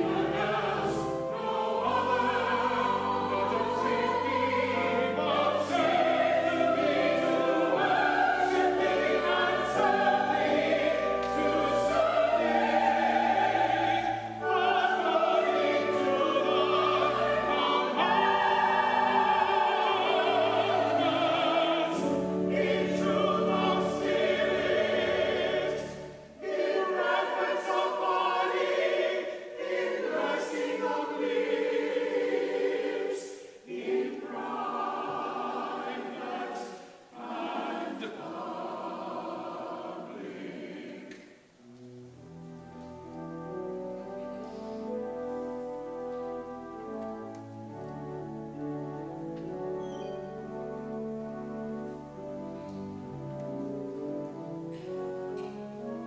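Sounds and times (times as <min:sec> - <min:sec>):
church choir singing: 0:00.0 - 0:41.8.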